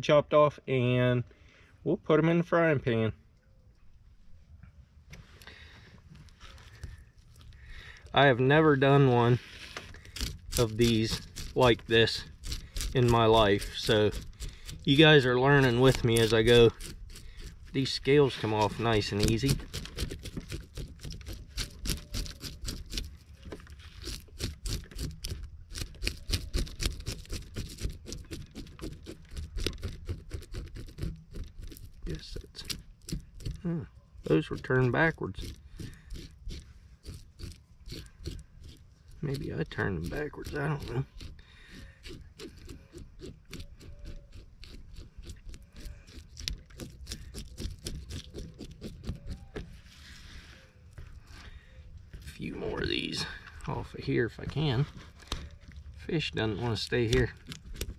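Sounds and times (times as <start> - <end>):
spoon scraping fish scales: 8.7 - 33.6, 34.2 - 51.2.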